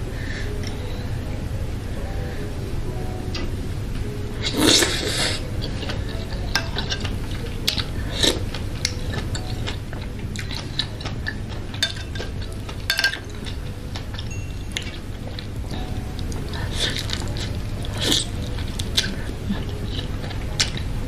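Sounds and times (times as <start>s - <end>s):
steady low hum: 0.0s - 21.0s
chewing: 4.4s - 21.0s
metal fork clicking on bowl: 10.4s - 15.0s.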